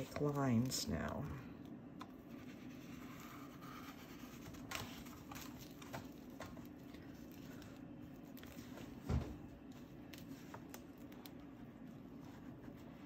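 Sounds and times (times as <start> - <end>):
steady low hum: 0.0 - 13.0
drawing tool strokes on paper: 2.2 - 4.7, 12.0 - 13.0.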